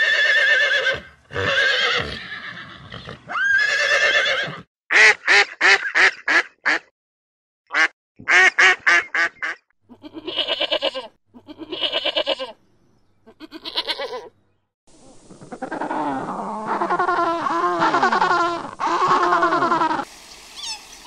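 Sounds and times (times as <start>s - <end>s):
sheep bleating: 9.9s - 12.6s, 13.3s - 14.3s.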